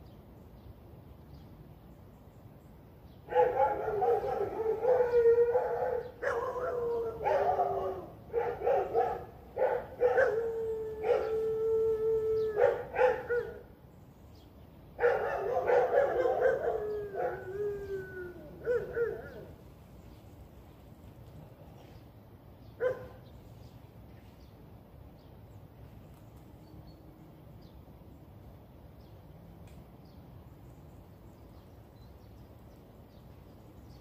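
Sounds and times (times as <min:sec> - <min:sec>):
dog howling: 0:04.0 - 0:08.1, 0:10.0 - 0:13.6, 0:15.3 - 0:19.5.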